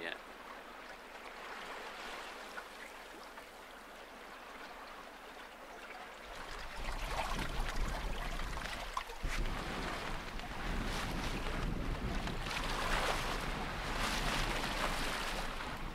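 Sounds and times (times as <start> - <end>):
water rushing along a hull: 0.0 - 15.9
waves splashing against a boat: 0.0 - 15.9
wind buffeting microphone: 6.6 - 15.9.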